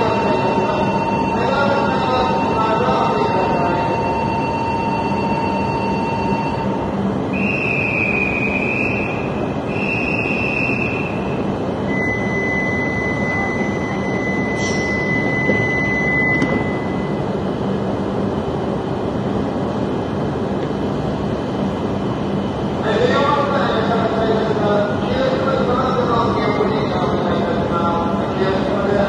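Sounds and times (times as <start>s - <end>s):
steady high beep: 0.0s - 11.3s, 11.9s - 17.2s
stopped trains running noise: 0.0s - 29.0s
wavering electronic chimes: 12.0s - 17.2s
train doors closing knock: 14.7s - 16.9s.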